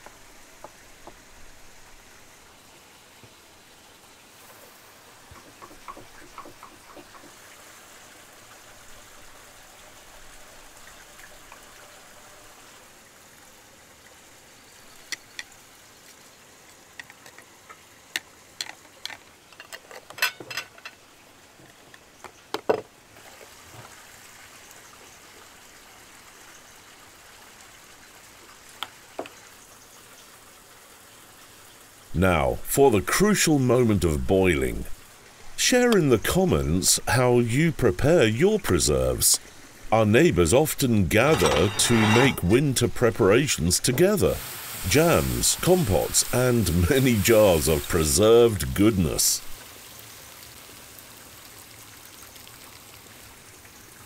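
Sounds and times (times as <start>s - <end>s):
faint hiss: 0.0s - 19.5s, 23.0s - 54.0s
glass jars clinking: 19.6s - 21.0s, 41.2s - 42.6s.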